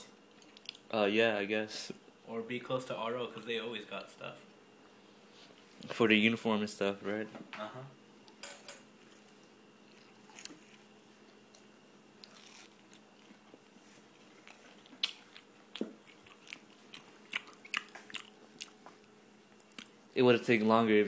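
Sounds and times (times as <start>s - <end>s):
faint steady hum: 0.0s - 21.0s
person chewing food: 9.0s - 20.1s.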